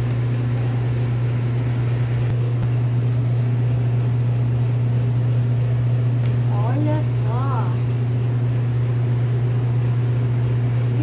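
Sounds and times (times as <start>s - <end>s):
loud low machine hum: 0.0s - 11.0s.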